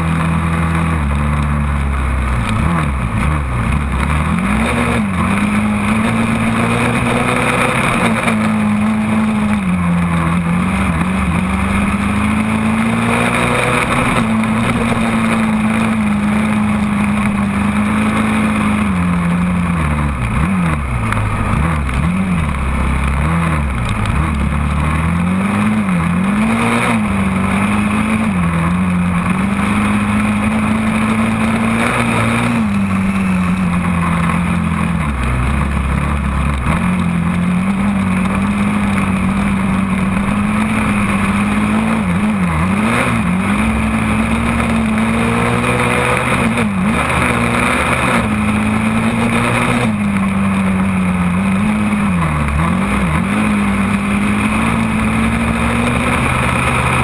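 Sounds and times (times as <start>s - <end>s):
quad engine revving: 0.0s - 57.0s.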